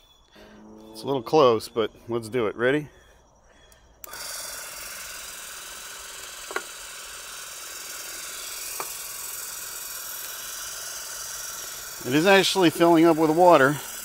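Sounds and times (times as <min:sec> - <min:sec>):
electric pump running: 0:04.0 - 0:14.0.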